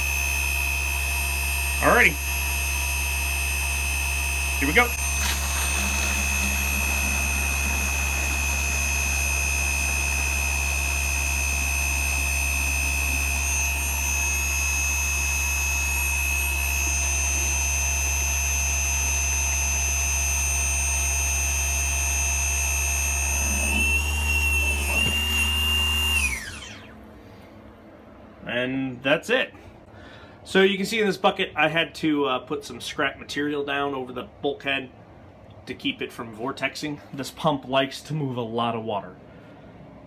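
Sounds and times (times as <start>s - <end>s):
electric water pump whining: 0.0s - 27.3s.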